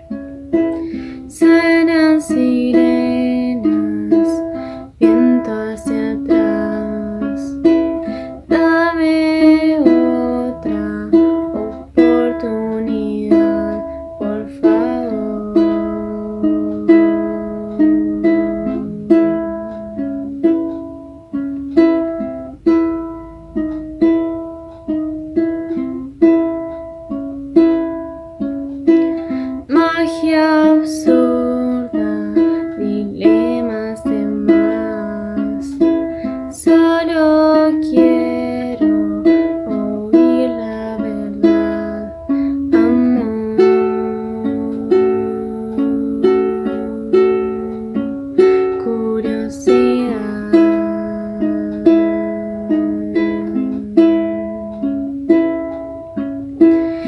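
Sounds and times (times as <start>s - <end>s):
woman singing slow song: 0.0s - 20.4s, 28.9s - 54.9s
fingerpicked acoustic string instrument: 0.0s - 57.0s.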